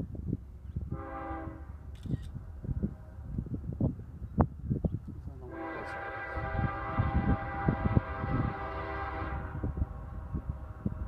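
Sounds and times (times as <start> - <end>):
locomotive air horn chord: 1.0 - 1.7, 5.5 - 9.7.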